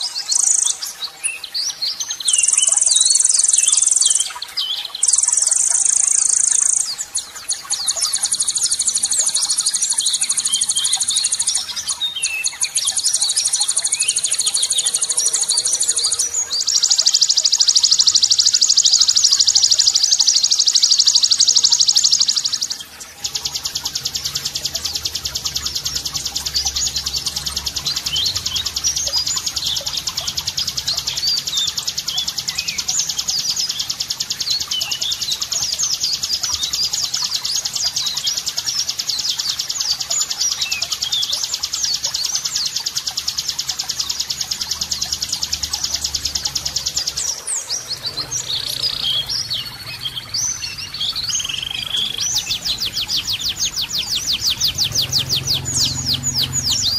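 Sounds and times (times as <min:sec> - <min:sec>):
bird chirping phrases: 0:00.0 - 0:56.9
sharp bird chirps: 0:00.0 - 0:56.9
songbird buzzing trill: 0:02.3 - 0:04.4, 0:05.0 - 0:07.0, 0:44.7 - 0:56.9.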